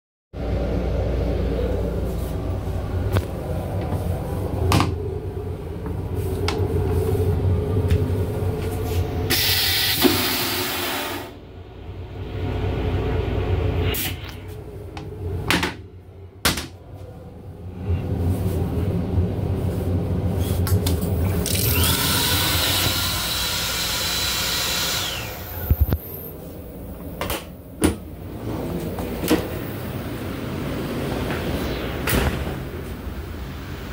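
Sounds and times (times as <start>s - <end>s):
rushing noise: 0.4s - 20.6s, 28.2s - 33.9s
railcar rumble: 0.4s - 21.4s, 26.3s - 33.9s
toilet flushing: 9.3s - 11.4s.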